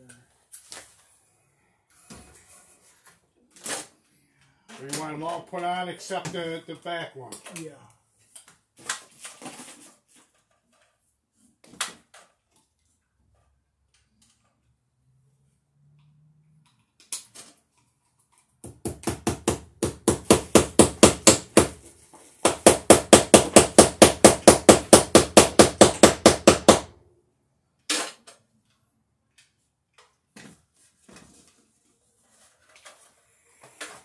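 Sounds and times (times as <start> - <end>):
hammer striking wood: 18.6 - 21.8, 22.4 - 26.9.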